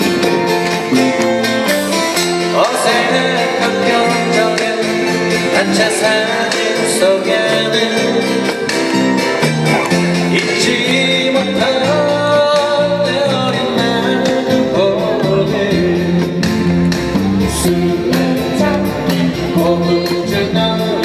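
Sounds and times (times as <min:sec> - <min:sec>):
strummed acoustic guitars: 0:00.0 - 0:21.0
djembe beat: 0:00.2 - 0:01.6
melody line: 0:00.3 - 0:12.5.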